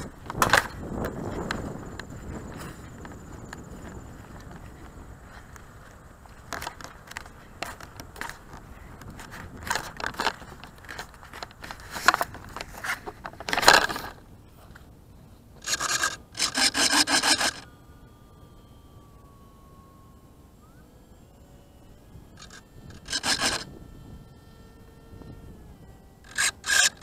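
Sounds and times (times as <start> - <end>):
camera handling noise: 0.0 - 14.9, 15.6 - 17.6, 22.4 - 23.7, 26.2 - 27.0
scraping against airframe: 6.4 - 14.8, 15.6 - 17.7, 22.4 - 23.7, 26.2 - 27.0.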